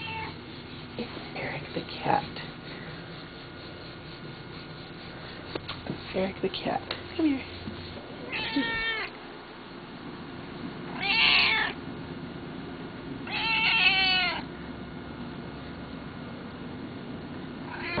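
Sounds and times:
cat meowing: 0.0s - 0.4s, 8.3s - 9.1s, 10.9s - 11.8s, 13.2s - 14.5s, 17.7s - 18.0s.

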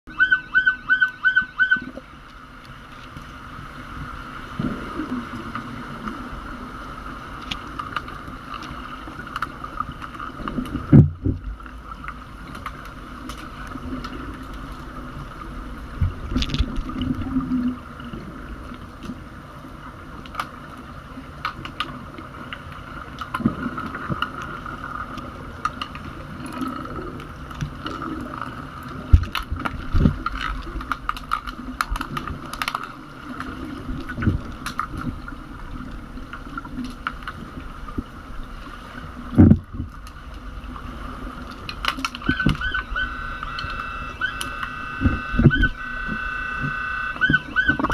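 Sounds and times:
underwater hum: 0.1s - 47.9s
underwater clicks and knocks: 7.4s - 14.7s, 16.0s - 17.7s, 25.1s - 35.2s, 39.3s - 40.2s, 41.4s - 47.9s.

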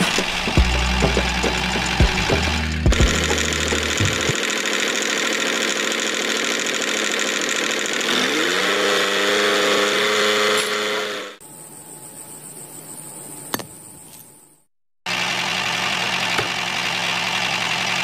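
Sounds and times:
small motor running: 0.0s - 11.4s, 15.1s - 18.0s.

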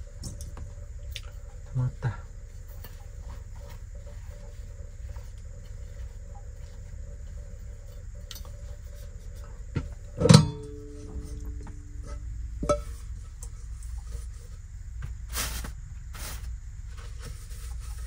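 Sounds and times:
steady low hum: 0.0s - 18.0s
metal pot clanking and ringing: 10.2s - 10.9s.

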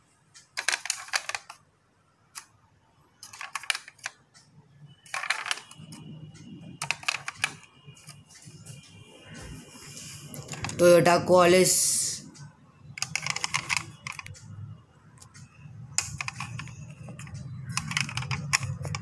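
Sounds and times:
toy car clicking and rattling: 0.4s - 1.6s, 3.2s - 4.2s, 5.0s - 8.2s, 12.9s - 14.5s, 15.2s - 19.0s.

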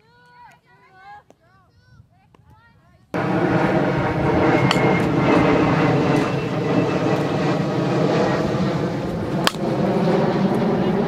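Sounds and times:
engine drone: 3.2s - 11.0s.

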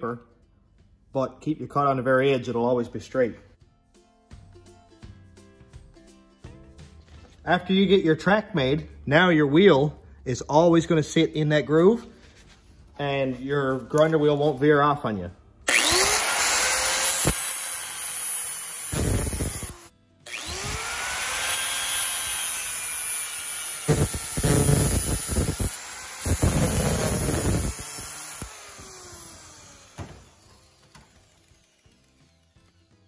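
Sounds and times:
angle grinder cutting metal: 15.7s - 33.0s.

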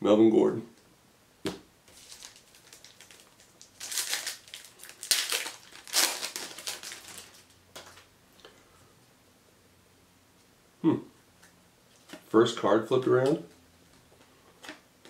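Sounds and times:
foil wrapper crinkling and tearing: 1.9s - 8.0s.

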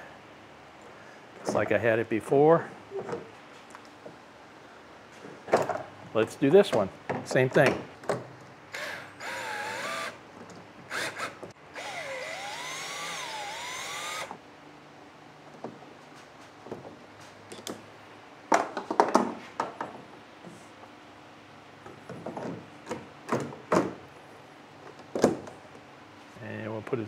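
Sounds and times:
cordless drill driving screws: 8.7s - 10.2s, 10.9s - 14.4s.

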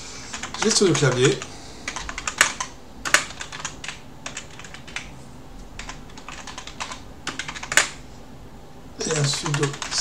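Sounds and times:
keyboard typing clicks: 0.3s - 5.1s, 5.8s - 8.0s.

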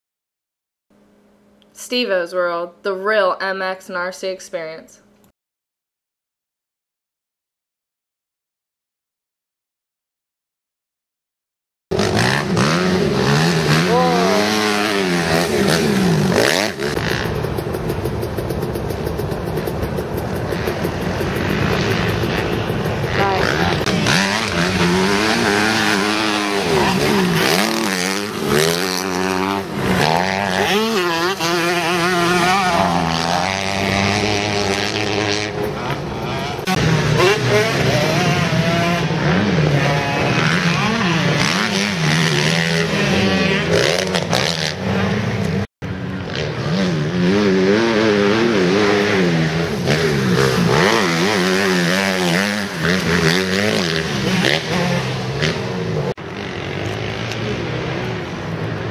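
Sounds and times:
dirt bike engines revving: 11.9s - 58.9s.

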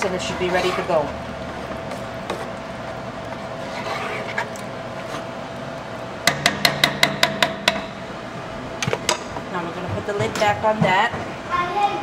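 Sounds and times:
spoon scraping in pot: 0.0s - 1.2s, 3.5s - 5.3s.

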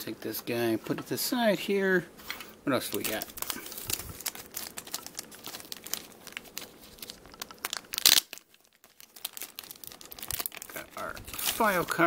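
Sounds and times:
plastic bag crinkling: 2.8s - 12.0s.

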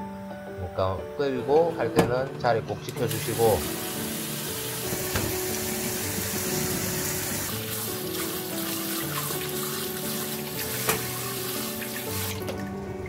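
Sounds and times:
background music: 0.0s - 13.0s
hands rinsing food in water: 2.8s - 12.8s
tap running into a pot: 10.8s - 11.2s.

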